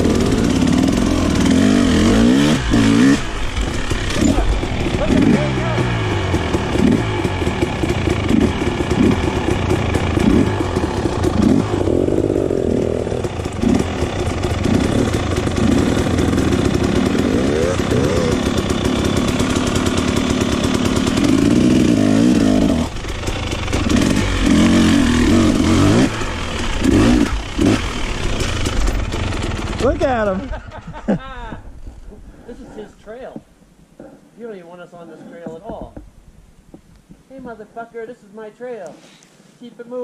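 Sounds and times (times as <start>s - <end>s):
dirt bike engine revving: 0.0s - 30.8s.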